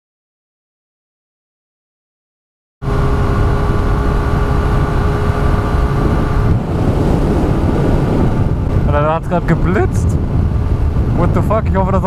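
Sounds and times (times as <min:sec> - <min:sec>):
motorcycle engine cruising: 0:02.8 - 0:12.0
wind rush on microphone: 0:02.8 - 0:12.0.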